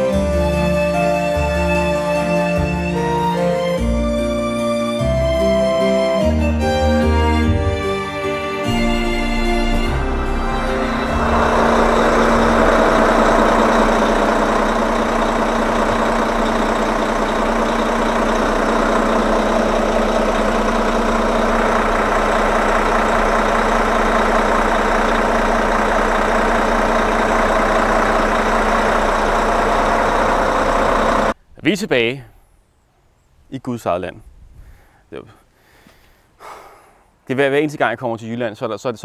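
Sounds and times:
vehicle engine running: 0.0 - 4.6, 6.4 - 31.4.

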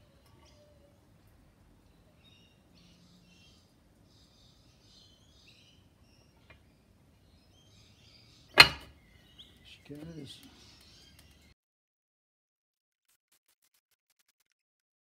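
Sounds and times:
faint bird chirps: 0.0 - 11.6.

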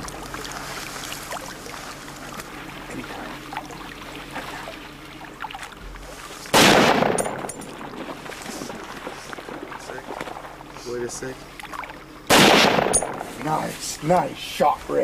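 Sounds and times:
faint outdoor background noise: 0.0 - 15.0
rifle shot with echo: 6.5 - 7.5, 12.3 - 13.4.

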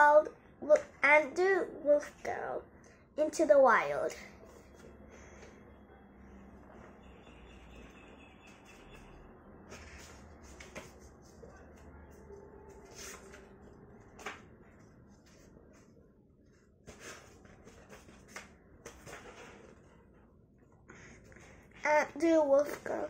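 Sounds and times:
book pages turning: 9.7 - 11.5, 12.7 - 20.1.

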